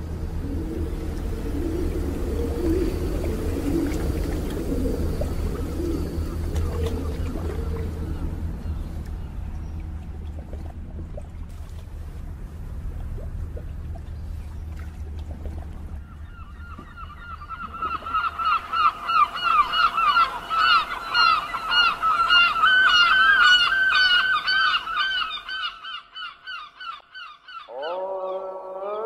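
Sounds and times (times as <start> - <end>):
low rumble: 0.0 - 19.3
birds honking: 15.9 - 29.0.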